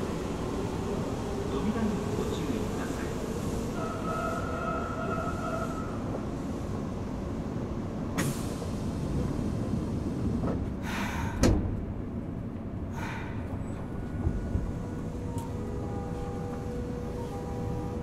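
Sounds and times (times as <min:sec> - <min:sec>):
train low rumble: 0:00.0 - 0:18.0
air brake hisses: 0:08.2 - 0:09.0, 0:10.8 - 0:11.5.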